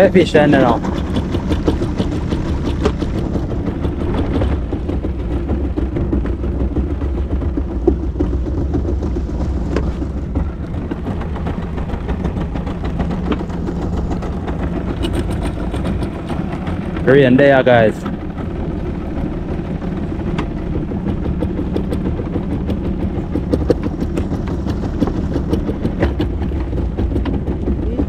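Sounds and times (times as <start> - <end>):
boat engine idling: 0.0 - 28.0.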